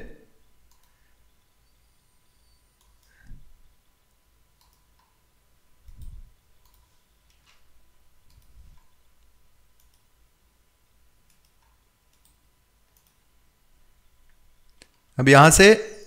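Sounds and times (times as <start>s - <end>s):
faint computer mouse clicks: 0.7s - 1.0s, 2.8s - 3.3s, 4.1s - 5.2s, 5.9s - 7.6s, 8.3s - 10.1s, 11.2s - 13.2s.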